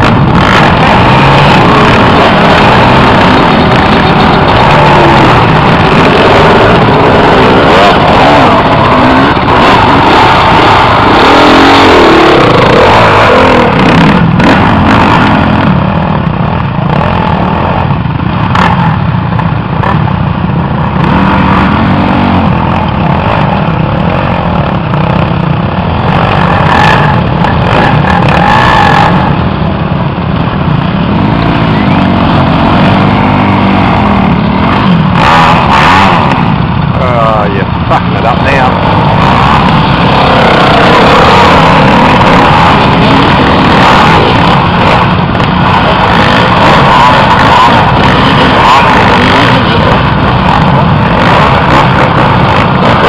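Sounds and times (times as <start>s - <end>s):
dirt bike engines revving: 0.0s - 53.0s.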